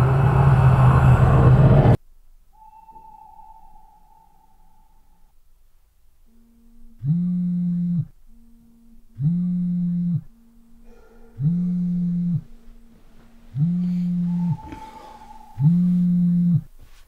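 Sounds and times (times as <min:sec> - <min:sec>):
phone vibrating on wood: 0:06.3 - 0:16.8.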